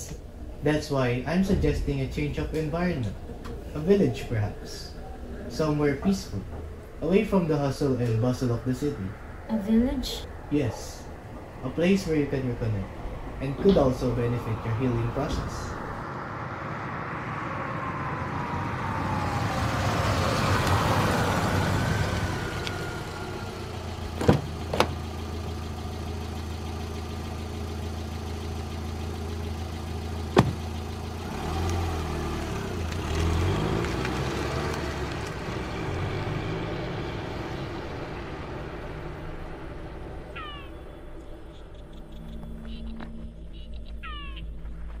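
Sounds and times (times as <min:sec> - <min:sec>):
car engine humming: 0:00.0 - 0:45.0
sharp knocks: 0:30.3 - 0:30.7.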